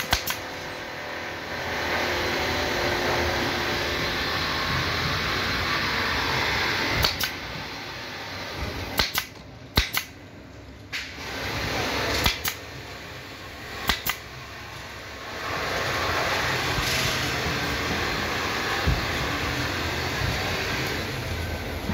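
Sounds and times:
pneumatic staple gun firing: 0.0s - 0.6s, 6.9s - 7.4s, 9.0s - 10.2s, 12.0s - 12.7s, 13.8s - 14.3s, 16.7s - 17.4s.

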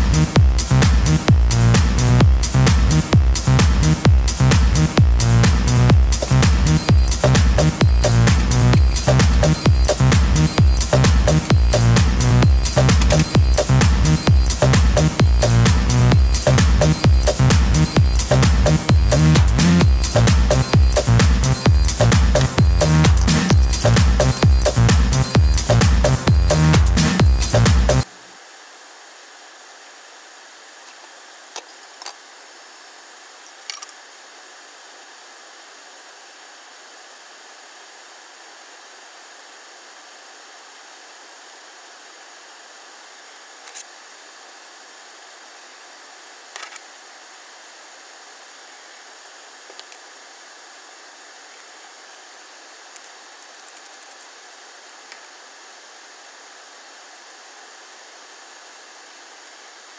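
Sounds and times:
steady hiss: 0.0s - 59.9s.

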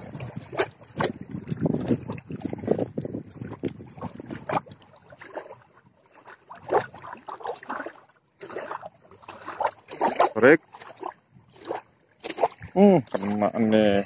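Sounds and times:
wind buffeting microphone: 0.0s - 5.1s
small waves lapping: 0.0s - 14.0s.

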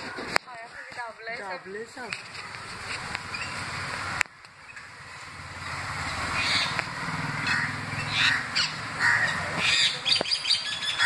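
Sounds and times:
crows cawing: 6.4s - 10.0s.

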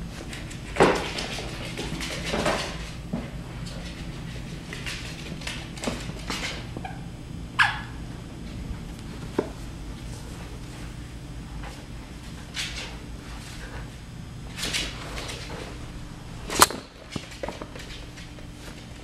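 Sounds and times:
paws and cone clicking on floor: 0.1s - 7.0s, 11.6s - 13.9s, 14.5s - 15.8s, 16.6s - 19.0s.

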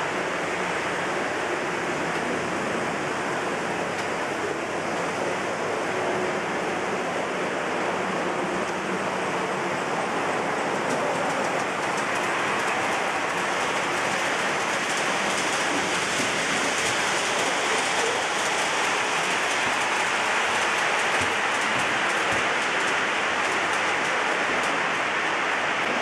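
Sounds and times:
model train wheels clicking: 10.6s - 26.0s.

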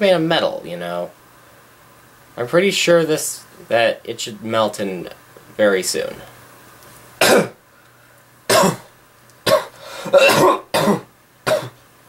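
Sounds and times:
person coughing: 7.2s - 7.6s, 8.5s - 8.9s, 9.5s - 11.8s.

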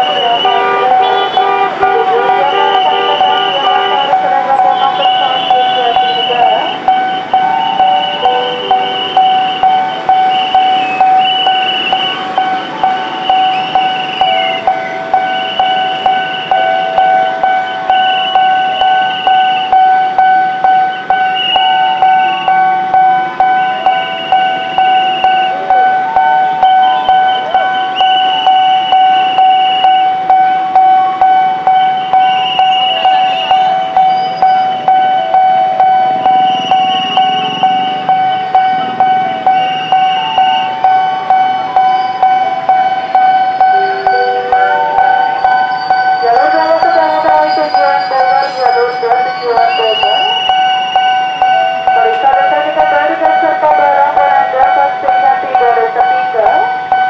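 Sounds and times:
level crossing bell ringing: 0.0s - 57.0s
steady tone: 0.0s - 57.0s.

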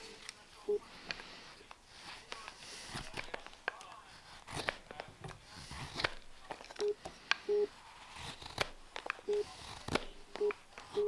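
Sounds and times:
knife cutting wood: 2.2s - 11.0s.

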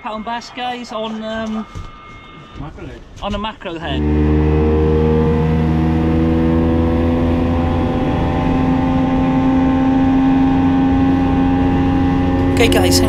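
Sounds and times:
outboard motor running: 4.0s - 13.0s.

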